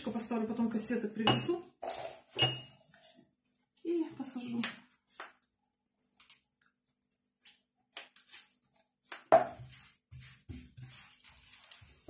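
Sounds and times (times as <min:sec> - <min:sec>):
rustling leaves and stems: 0:10.9 - 0:12.0.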